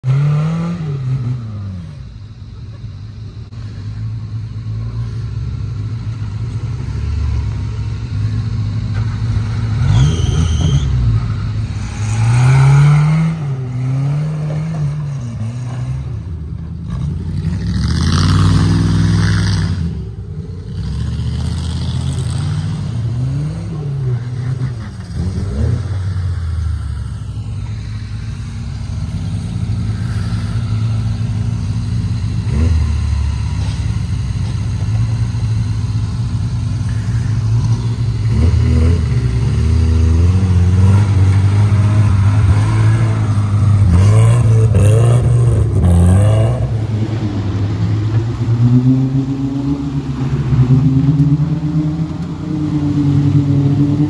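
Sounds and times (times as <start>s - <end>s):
off-road vehicle engine revving: 0.0s - 54.0s.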